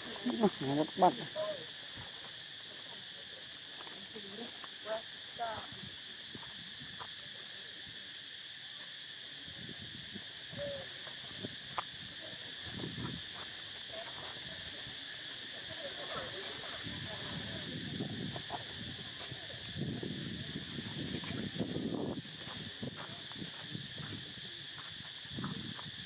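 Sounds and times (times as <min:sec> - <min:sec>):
high-pitched insect chorus: 0:00.0 - 0:26.0.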